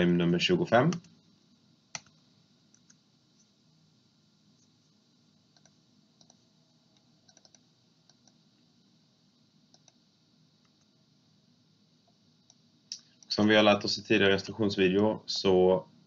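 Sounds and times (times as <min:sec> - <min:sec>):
computer mouse clicks: 0:01.9 - 0:03.5, 0:05.5 - 0:06.4, 0:07.0 - 0:08.4, 0:09.7 - 0:10.0.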